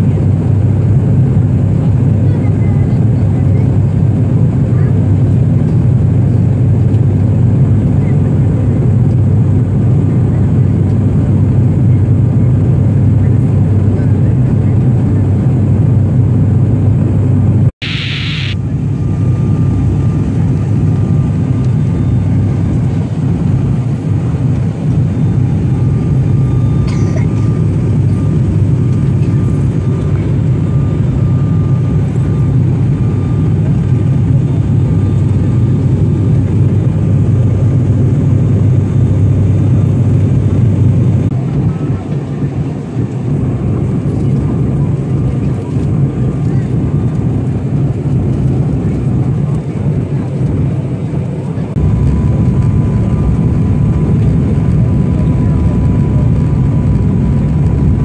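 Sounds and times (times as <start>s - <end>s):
turboprop engines droning: 0.0s - 58.0s
faint high whine: 17.8s - 20.2s.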